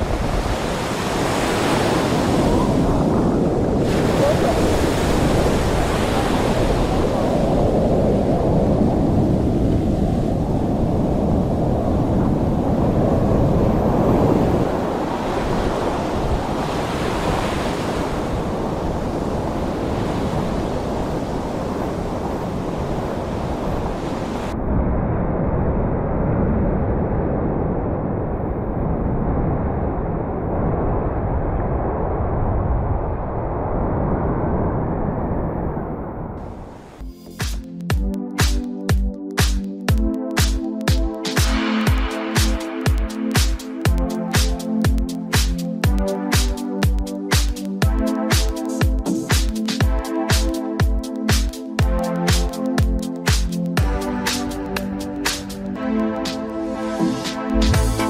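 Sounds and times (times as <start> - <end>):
ocean surf breaking: 0.0 - 25.2, 40.4 - 58.0
wind buffeting microphone: 0.0 - 37.0.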